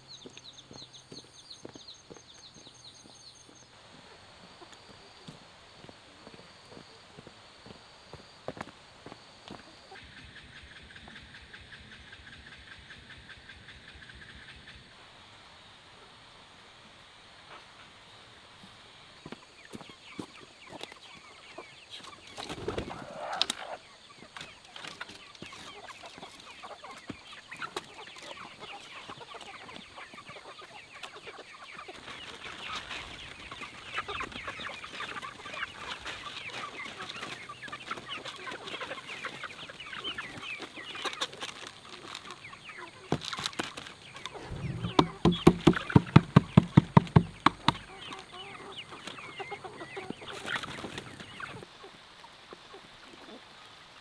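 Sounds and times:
chickens clucking: 0.0 - 15.0, 17.4 - 53.7
patter of pecking: 19.3 - 51.7
loud knocks: 44.4 - 47.9.

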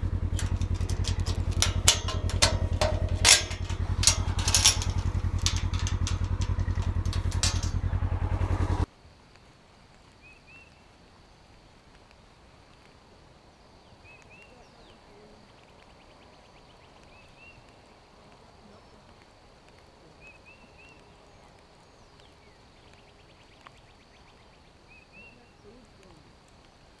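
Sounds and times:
rattling bird trills: 0.0 - 8.8.

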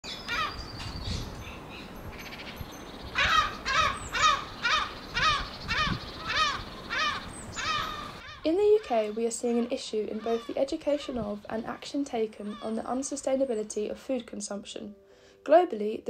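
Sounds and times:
crow cawing: 0.3 - 0.6, 3.2 - 9.2.

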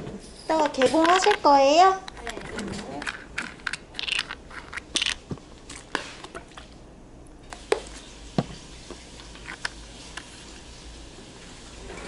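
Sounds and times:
low room hum: 0.0 - 12.0
plastic cases clicking on counter: 0.6 - 6.4.

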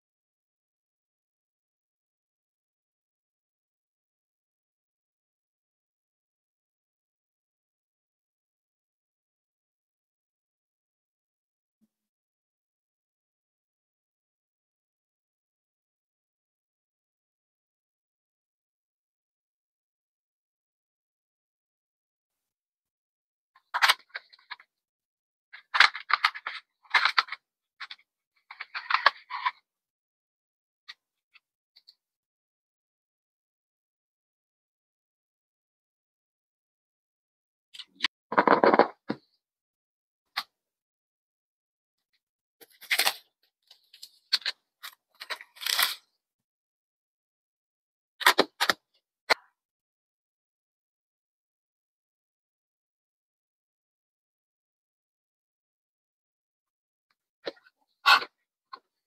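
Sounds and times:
packaging crinkling and scraping: 42.6 - 43.2, 43.8 - 46.0.

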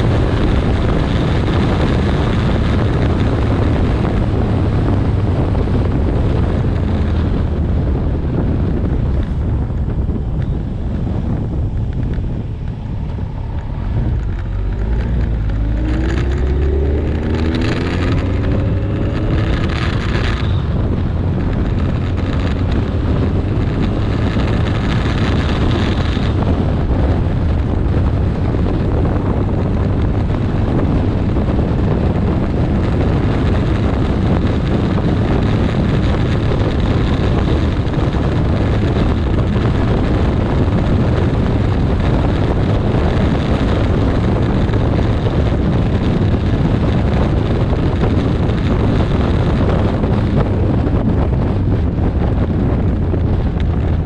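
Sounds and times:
motorcycle engine cruising: 0.0 - 54.0
wind noise on microphone: 0.0 - 54.0.

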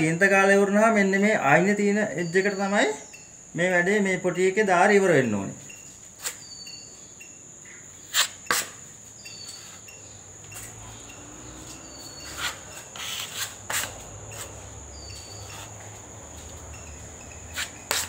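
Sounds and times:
high insect trill: 0.0 - 18.0
short repeating chirps: 5.6 - 15.8
putty knife scraping plaster: 8.1 - 8.8, 12.2 - 14.6, 17.5 - 18.0.

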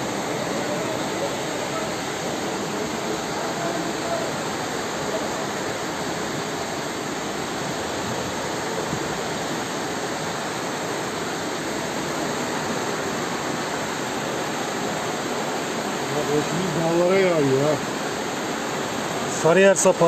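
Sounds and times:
floodwater rushing: 0.0 - 20.0.

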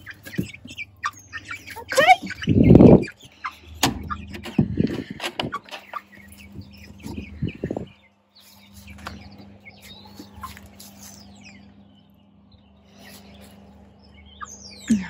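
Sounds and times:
hens calling: 0.0 - 15.0
small birds chirping: 0.0 - 15.0
knocks in chicken coop: 3.8 - 5.9.

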